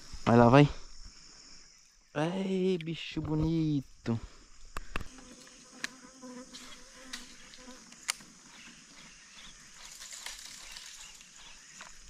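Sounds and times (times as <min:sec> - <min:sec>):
flying insect buzzing: 0:04.3 - 0:12.0.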